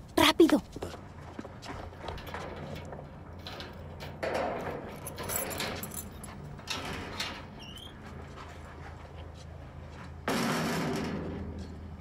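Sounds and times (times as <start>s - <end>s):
metal doors rattling: 2.2s - 7.7s
keys jangling: 4.9s - 6.4s.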